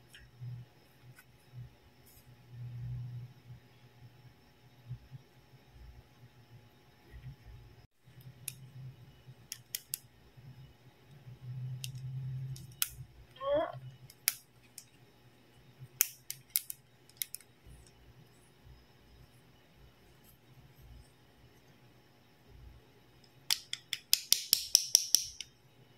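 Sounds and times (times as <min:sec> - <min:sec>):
plastic toy pieces clicking: 0:16.0 - 0:17.4.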